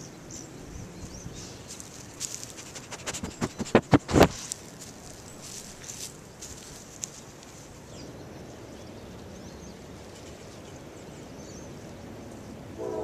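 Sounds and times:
wind noise on microphone: 2.7 - 4.6.

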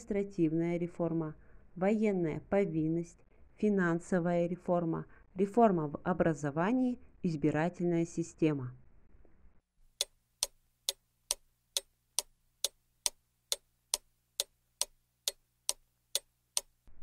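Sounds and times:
clock ticking: 10.0 - 16.8.

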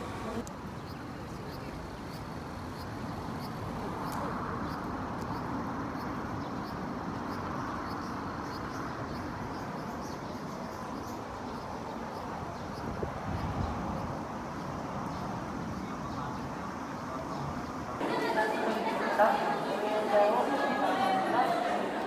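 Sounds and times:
distant traffic noise: 0.0 - 22.0
indistinct crowd voices: 17.2 - 22.0.

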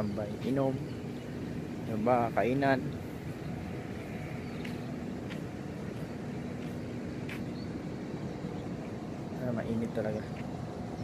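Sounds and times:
outdoor background rumble: 0.0 - 11.0
footsteps on stone paving: 3.9 - 7.7.

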